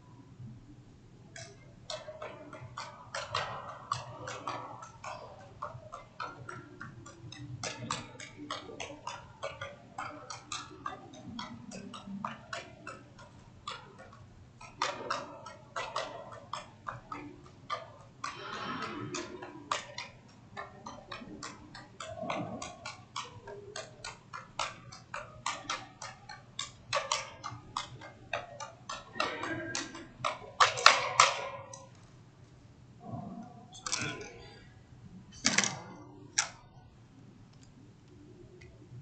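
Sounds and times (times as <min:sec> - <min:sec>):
juggling clubs smacking into hands: 0:01.3 - 0:32.0.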